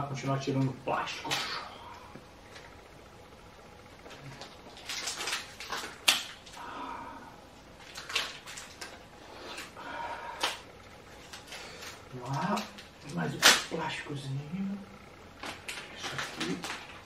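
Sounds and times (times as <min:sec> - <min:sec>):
plastic film crinkling: 0:04.0 - 0:06.6, 0:07.7 - 0:09.8, 0:10.4 - 0:14.0, 0:15.4 - 0:17.0
sharp plastic crackles: 0:04.0 - 0:06.7, 0:07.6 - 0:14.0, 0:15.3 - 0:17.0.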